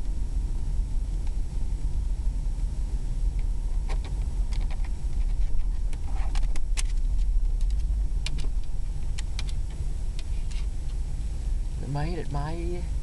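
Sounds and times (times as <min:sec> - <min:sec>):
truck rumble inside cab: 0:00.0 - 0:13.0
irregular clicks and taps: 0:03.9 - 0:11.0.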